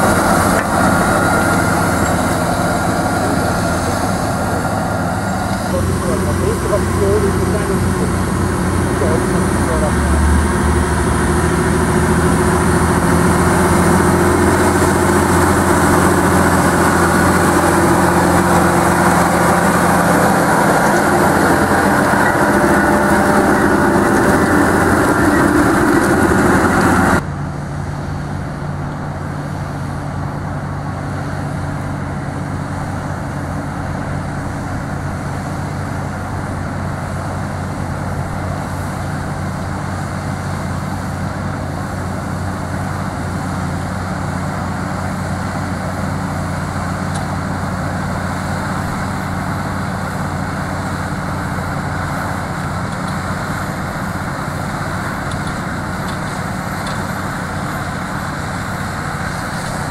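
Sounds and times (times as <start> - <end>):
tractor diesel engine under load: 0.0 - 59.9
discs rushing through soil: 39.9 - 59.9.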